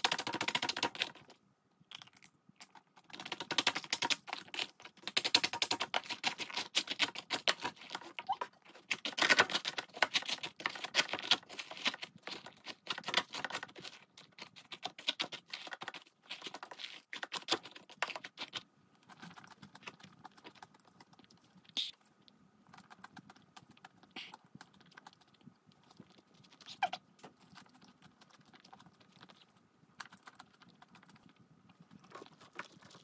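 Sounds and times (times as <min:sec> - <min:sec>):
chewing and mouth clicks: 0:01.8 - 0:03.4, 0:11.6 - 0:33.0.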